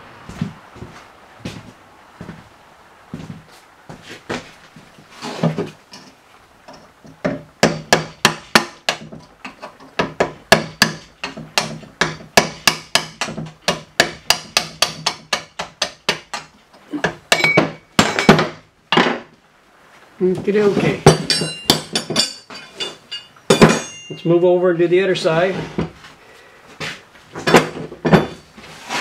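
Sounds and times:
hammer striking metal: 17.3 - 18.5, 21.1 - 24.2.

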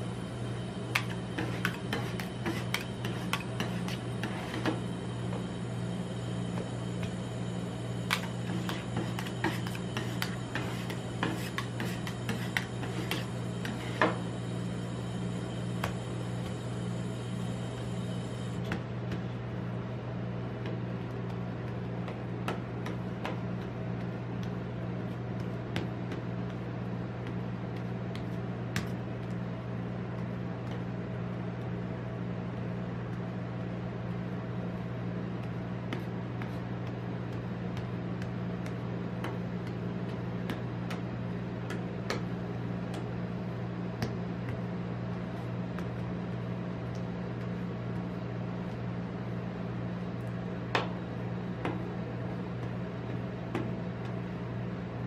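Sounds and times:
ice cream machine humming: 0.0 - 32.0.

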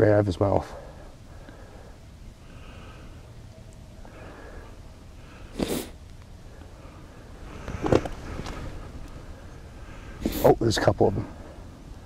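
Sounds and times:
low steady background: 0.0 - 12.0
person sniffing: 5.4 - 6.0, 10.1 - 10.6.

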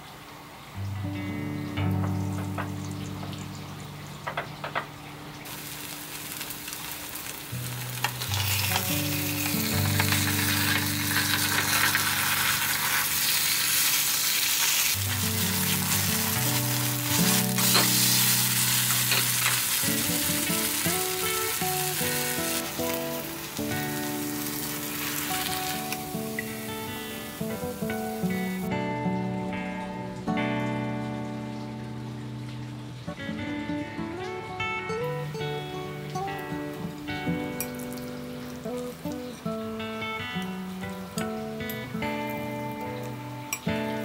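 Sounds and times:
soft guitar music: 0.0 - 44.0
pancake sizzling in oil: 5.4 - 28.7
utensils scraping a pan: 8.1 - 19.8.

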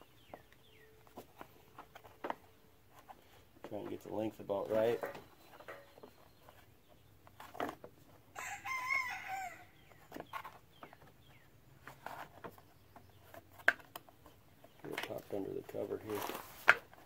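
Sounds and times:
rooster crowing: 8.3 - 9.8.

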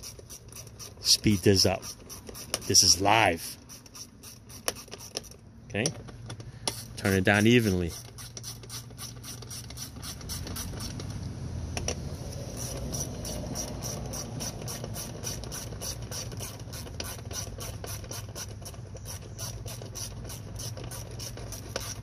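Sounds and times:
hand ratchet clicking: 0.0 - 5.4, 6.3 - 11.1, 11.8 - 22.0.

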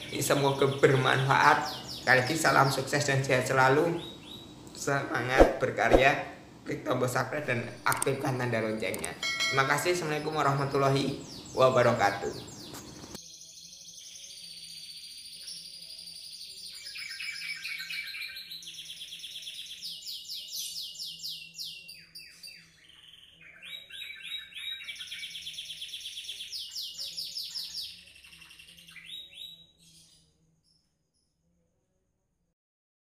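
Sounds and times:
canary singing trills: 0.0 - 4.6, 9.6 - 30.8.

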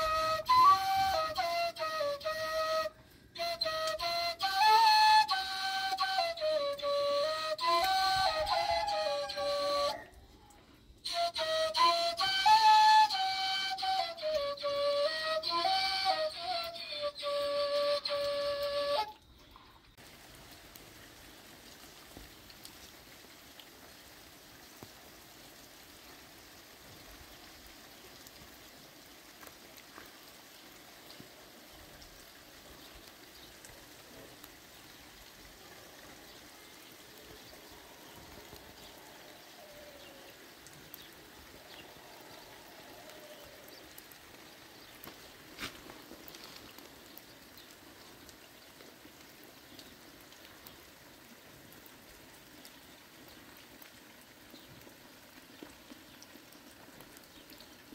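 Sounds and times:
light rain on puddles: 0.0 - 57.9
faint animal calls: 41.5 - 43.9.

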